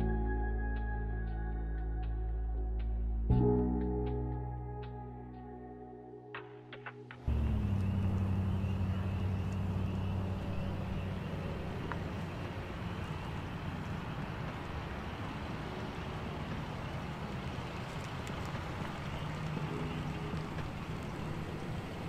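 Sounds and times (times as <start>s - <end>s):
road noise: 6.3s - 22.0s
car engine hum: 7.2s - 22.0s.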